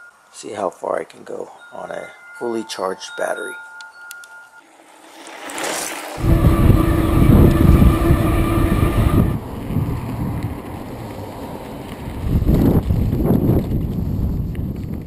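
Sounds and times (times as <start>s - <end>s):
electric bike rumble: 4.7s - 15.0s
steady motor whine: 5.7s - 10.5s
wind buffeting microphone: 6.2s - 15.0s.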